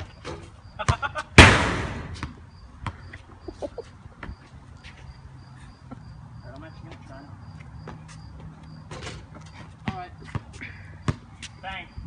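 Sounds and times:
loud crash: 0:01.4 - 0:02.2
basketball thudding on concrete: 0:01.4 - 0:03.1.

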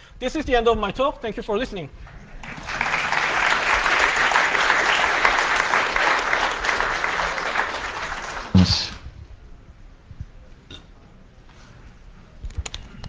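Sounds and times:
audience applauding: 0:02.1 - 0:09.0.

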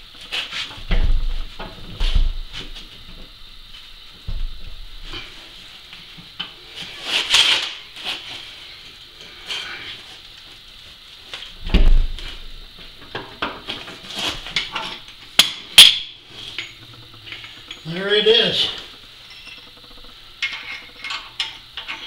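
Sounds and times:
steel tools clinking and scraping: 0:15.8 - 0:18.6, 0:19.2 - 0:19.7, 0:20.4 - 0:22.0.

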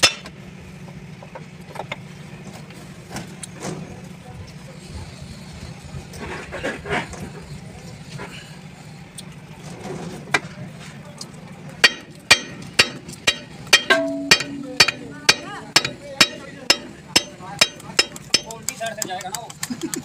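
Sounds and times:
hammer blows on steel: 0:11.8 - 0:18.6.

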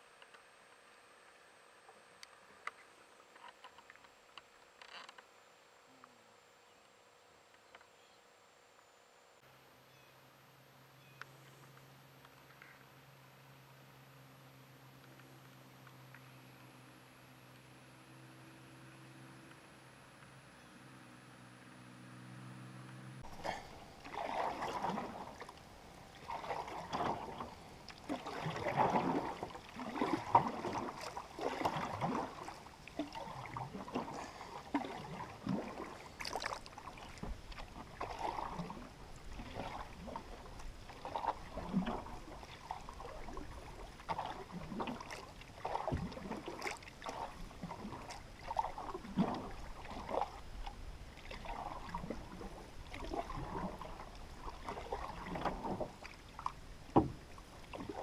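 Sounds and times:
water gurgling against canoe hull: 0:23.2 - 0:58.0.

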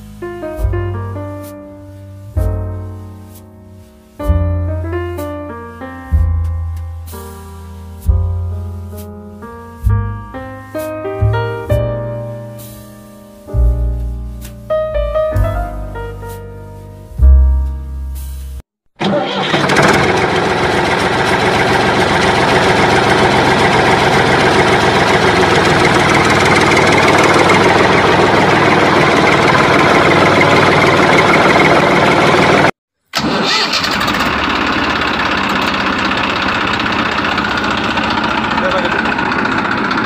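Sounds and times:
vehicle engine starting and running: 0:19.0 - 0:40.0.

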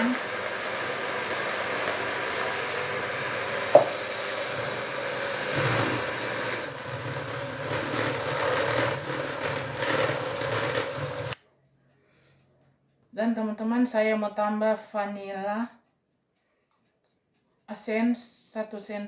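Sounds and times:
electric hand mixer churning batter: 0:00.0 - 0:11.4
sharp tap: 0:03.7 - 0:03.9.

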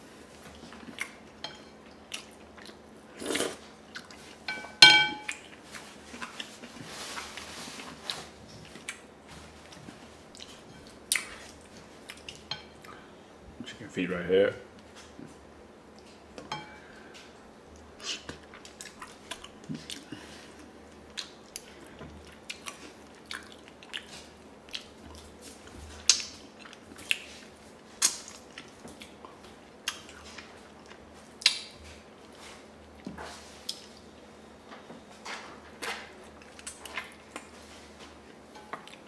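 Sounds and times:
person chewing wetly: 0:01.8 - 0:04.4, 0:08.1 - 0:13.0, 0:17.7 - 0:25.3, 0:26.0 - 0:32.4
mouth smacks and clicks: 0:31.4 - 0:31.7.

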